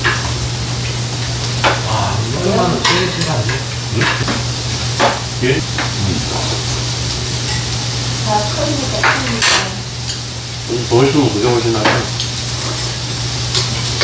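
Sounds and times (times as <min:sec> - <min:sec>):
food sizzling in a pan: 0:00.0 - 0:14.0
steady low hum: 0:01.0 - 0:08.2
tableware clinking: 0:02.7 - 0:04.4.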